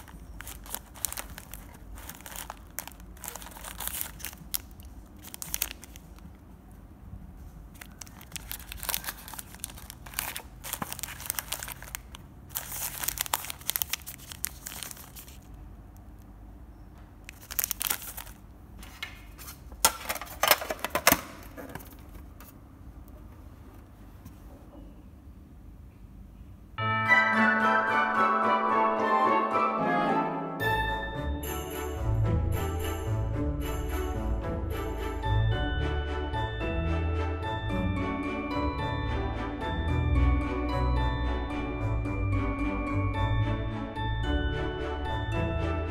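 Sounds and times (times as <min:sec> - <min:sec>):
plastic wrappers crinkling: 0:00.0 - 0:06.5, 0:07.4 - 0:15.6, 0:17.2 - 0:22.5.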